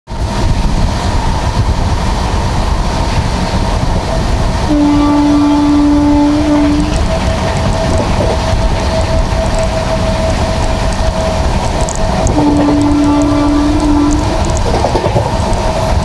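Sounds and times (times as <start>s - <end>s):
train wheels rumbling on rails: 0.1s - 16.0s
wind: 0.1s - 16.0s
train horn blast: 4.7s - 15.0s.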